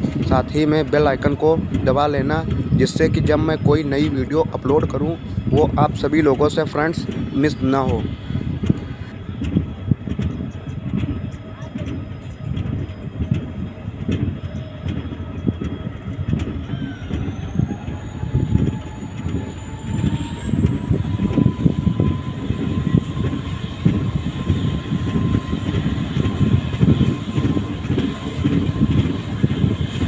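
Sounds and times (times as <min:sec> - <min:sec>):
train wheel and rail noise: 0:00.0 - 0:30.0
faint rising whine: 0:03.0 - 0:30.0.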